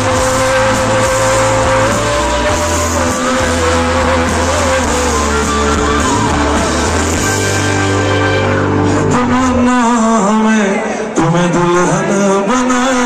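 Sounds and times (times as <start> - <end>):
drums: 0.0 - 10.4
bass: 0.0 - 10.6
electric guitar: 0.0 - 13.0
keyboards: 0.0 - 13.0
person singing: 0.0 - 13.0.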